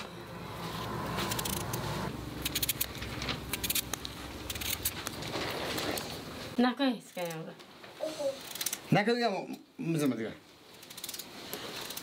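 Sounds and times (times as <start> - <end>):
low hum: 0.0 - 4.6.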